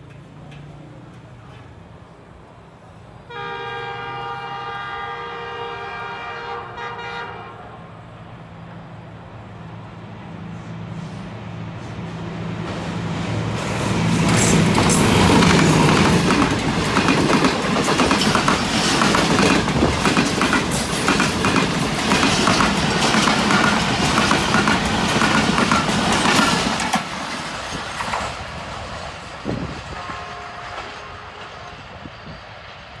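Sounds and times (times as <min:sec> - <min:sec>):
diesel locomotive engine hum: 0:00.0 - 0:33.0
train wheels clattering on rails: 0:12.0 - 0:32.5.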